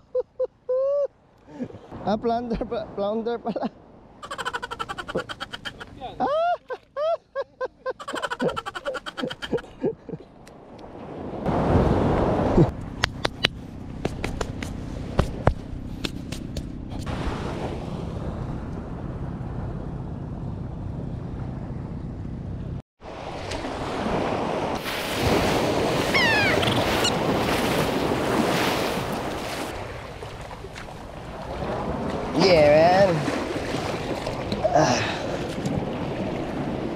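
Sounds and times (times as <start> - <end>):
small waves washing onto rocks: 23.2 - 26.2, 26.8 - 36.9.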